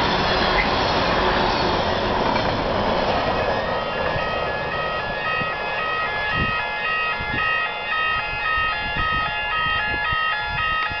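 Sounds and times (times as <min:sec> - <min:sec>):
two-tone railway warning horns: 0:03.4 - 0:11.0.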